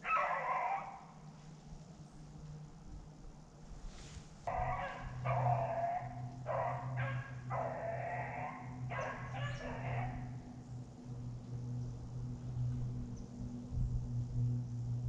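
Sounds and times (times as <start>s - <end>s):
beagle baying: 0.0s - 1.2s, 4.5s - 10.5s.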